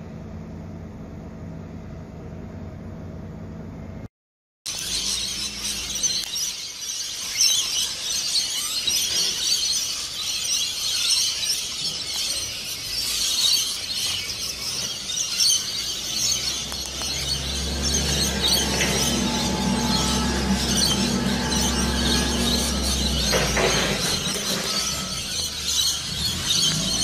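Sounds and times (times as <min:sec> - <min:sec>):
parrots screeching and chattering: 0:04.7 - 0:27.0.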